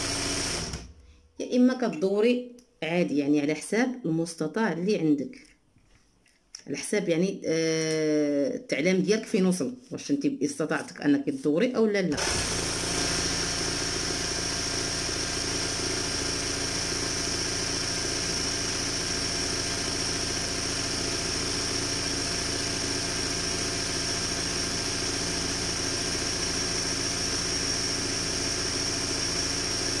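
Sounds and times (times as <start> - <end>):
embroidery sewing machine running: 0.0 - 1.0, 12.2 - 30.0.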